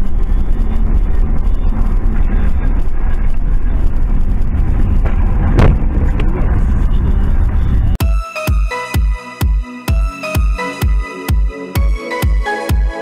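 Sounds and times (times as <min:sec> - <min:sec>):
car engine and tyres rumbling: 0:00.0 - 0:08.0.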